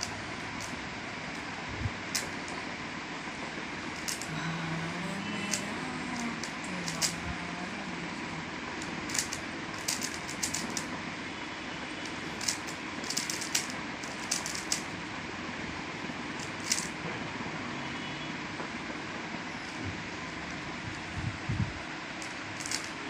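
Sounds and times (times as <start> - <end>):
puzzle cube layers clicking: 0.0 - 1.5, 4.0 - 4.3, 5.5 - 7.2, 8.8 - 10.9, 12.1 - 14.9, 16.4 - 16.9, 22.2 - 23.0
steady background hiss: 0.0 - 23.0.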